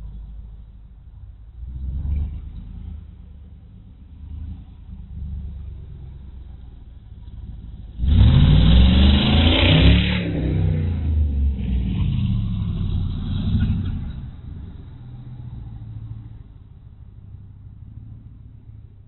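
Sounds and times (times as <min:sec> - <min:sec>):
car engine accelerating hard: 0:00.0 - 0:19.0.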